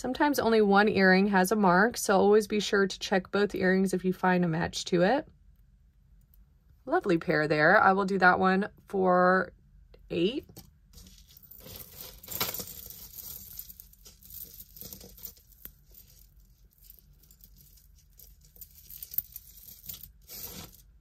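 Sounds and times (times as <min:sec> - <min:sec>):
jewelry clicking and clinking: 0:10.6 - 0:20.8.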